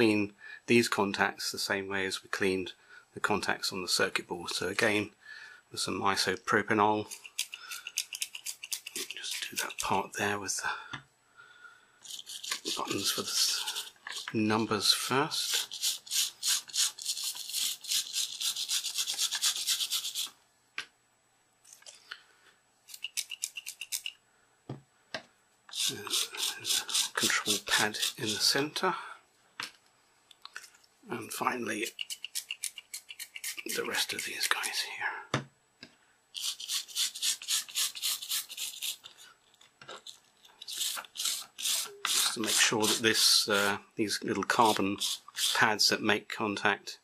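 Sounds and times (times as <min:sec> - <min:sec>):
toothbrush scrubbing rubber keypad: 0:07.1 - 0:09.9, 0:12.1 - 0:14.4, 0:15.4 - 0:20.3, 0:22.9 - 0:24.1, 0:25.7 - 0:28.5, 0:31.3 - 0:34.7, 0:36.4 - 0:39.1, 0:40.0 - 0:43.7.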